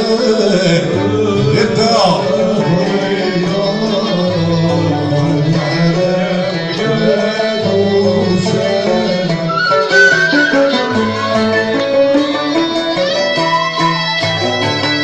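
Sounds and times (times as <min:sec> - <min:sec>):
string ensemble melody with violin: 0:00.0 - 0:15.0.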